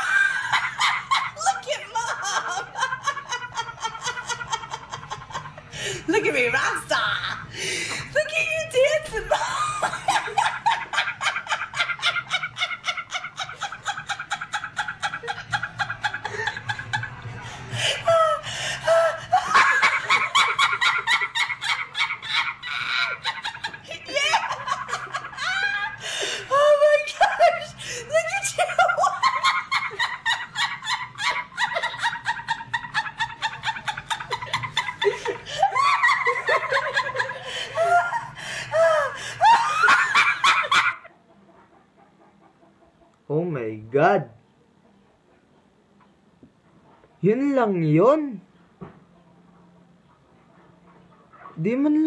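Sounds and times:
woman laughing: 0.0 - 41.1.

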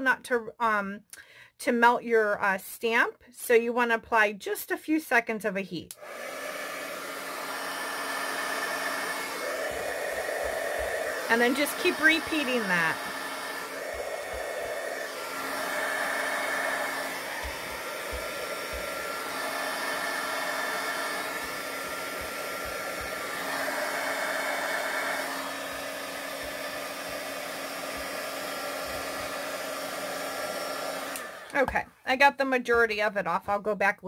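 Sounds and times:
heat gun blowing: 5.9 - 31.6.

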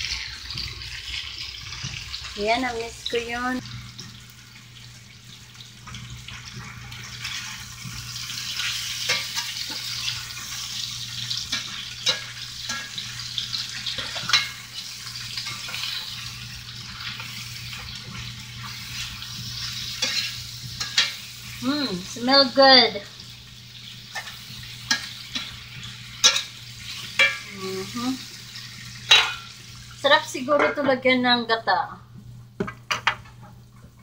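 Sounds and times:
meat sizzling in a skillet: 0.0 - 30.6
spatula scraping a pan: 7.2 - 21.3.

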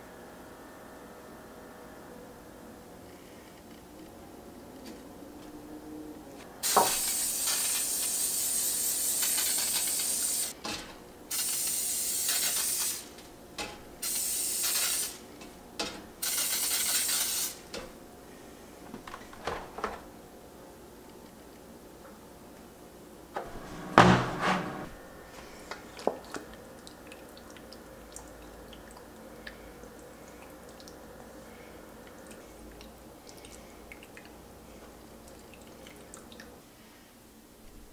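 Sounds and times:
aerosol spray hissing: 6.6 - 10.6, 14.0 - 15.2.

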